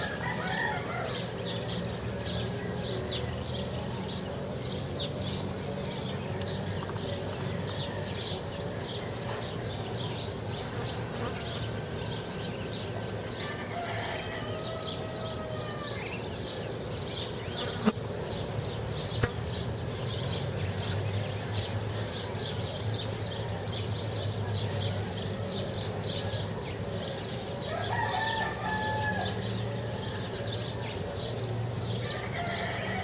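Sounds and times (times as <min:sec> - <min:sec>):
distant rooster crowing: 0:00.0 - 0:03.6, 0:07.4 - 0:09.5, 0:12.9 - 0:16.4, 0:27.6 - 0:30.8, 0:31.9 - 0:33.0.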